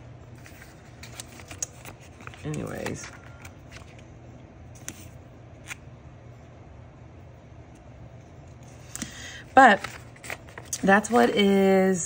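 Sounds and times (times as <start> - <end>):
low steady hum: 0.0 - 12.0
paper stickers being handled: 0.3 - 4.1, 4.7 - 5.8, 8.4 - 11.7.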